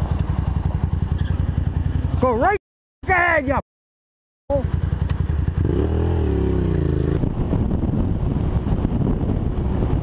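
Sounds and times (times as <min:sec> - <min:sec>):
motorcycle engine revving: 0:00.0 - 0:02.5, 0:04.5 - 0:10.0
wind rush: 0:06.2 - 0:10.0.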